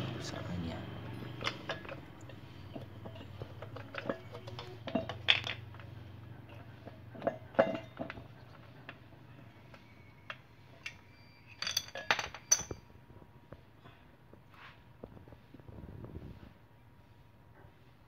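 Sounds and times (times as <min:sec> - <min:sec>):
metal parts clinking: 0:01.2 - 0:05.8, 0:09.7 - 0:12.9.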